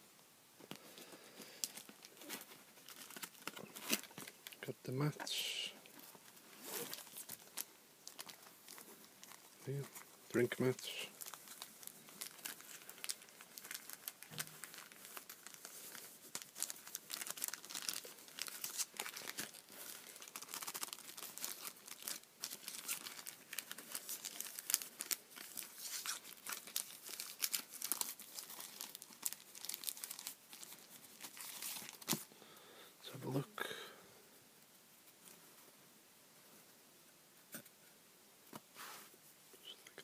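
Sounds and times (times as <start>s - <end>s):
plastic bag crinkling: 1.4s - 32.3s.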